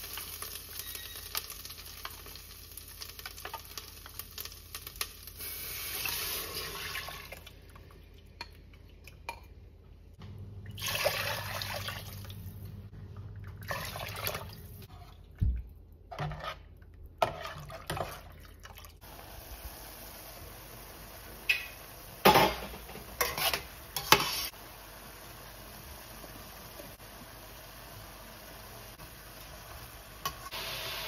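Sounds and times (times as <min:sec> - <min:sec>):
water pouring into pot: 0:05.7 - 0:07.8, 0:10.8 - 0:12.4, 0:13.6 - 0:14.7
spoon scraping bowl: 0:16.1 - 0:17.8.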